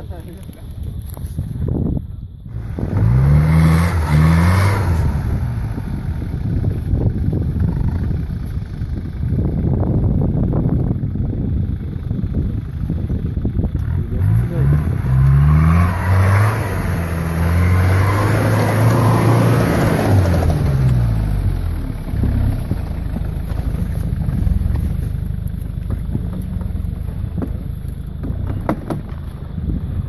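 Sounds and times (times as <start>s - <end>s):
engine revving: 2.5s - 8.2s, 13.0s - 29.1s
tyres spinning in snow: 2.5s - 30.0s
knocks: 28.2s - 29.2s.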